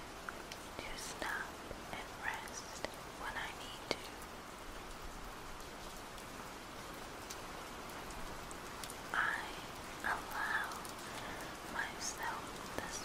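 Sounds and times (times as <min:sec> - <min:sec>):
steady hiss: 0:00.0 - 0:13.0
soft whispered sounds: 0:00.2 - 0:04.3, 0:09.1 - 0:13.0.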